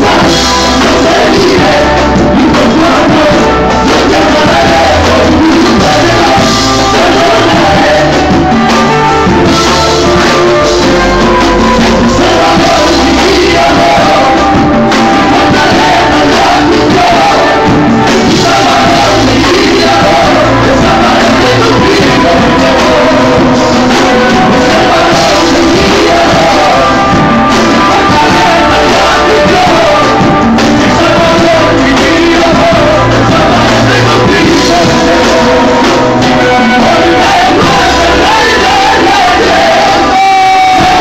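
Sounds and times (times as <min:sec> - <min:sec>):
electric guitar: 0:00.0 - 0:41.0
keyboard playing: 0:00.0 - 0:41.0
men's choir singing: 0:00.0 - 0:41.0.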